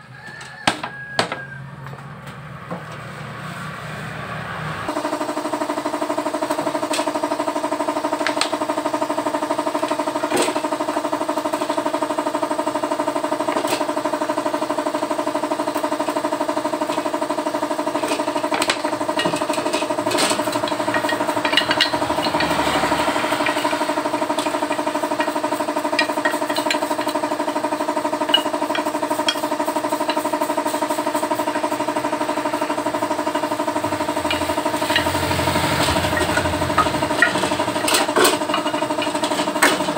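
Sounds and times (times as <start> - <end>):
machine motor running: 1.8 - 39.9.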